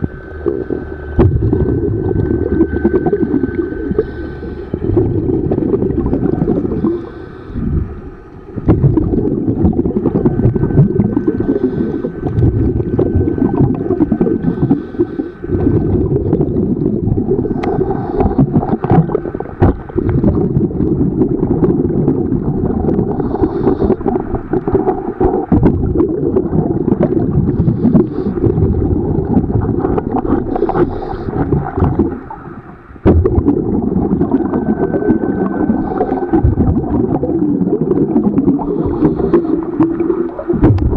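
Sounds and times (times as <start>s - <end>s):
underwater bubbles rumbling: 0.0s - 40.9s
regulator inhale hiss: 2.8s - 4.8s, 6.7s - 8.3s, 11.3s - 12.4s, 14.4s - 15.5s, 17.5s - 18.8s, 23.1s - 24.3s, 27.6s - 28.4s, 30.5s - 31.5s, 34.9s - 36.4s, 38.6s - 39.8s.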